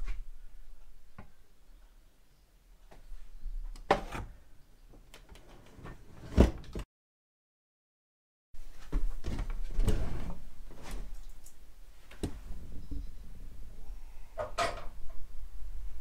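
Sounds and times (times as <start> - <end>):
oven door scraping and rattling: 9.2 - 10.4.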